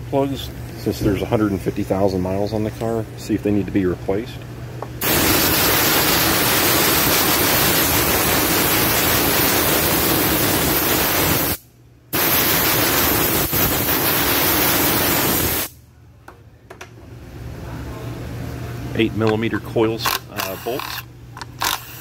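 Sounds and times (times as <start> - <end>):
hiss of rushing air: 5.0 - 11.6, 12.2 - 15.7.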